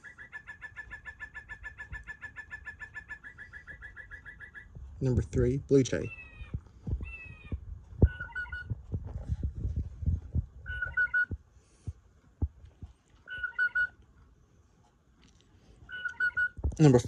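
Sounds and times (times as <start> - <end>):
clock playing recorded bird call: 0.0 - 8.8, 10.6 - 11.4, 13.2 - 14.0, 15.8 - 17.0.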